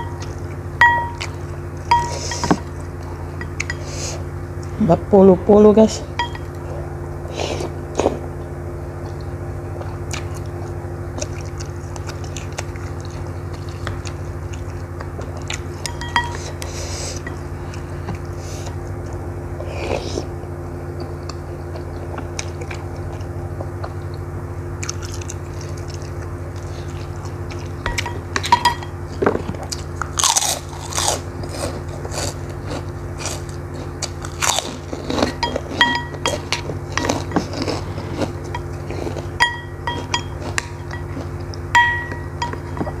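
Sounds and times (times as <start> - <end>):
steady low hum: 0.0 - 43.0
chewing and biting food: 9.1 - 20.3, 21.0 - 43.0
utensils clinking on ceramic bowl: 15.8 - 16.5, 27.9 - 29.0, 35.3 - 37.6, 39.4 - 43.0.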